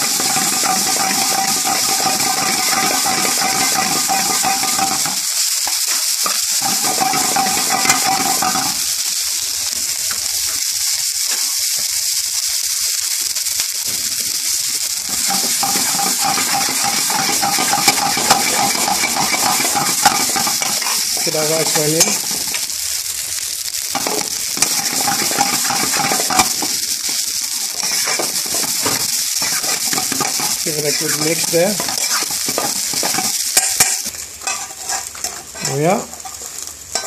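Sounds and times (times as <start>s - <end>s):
metal spatula scraping pan: 0.0s - 5.2s, 6.2s - 8.8s, 15.1s - 22.5s, 24.0s - 37.0s
spinach sizzling in oil: 0.0s - 37.0s.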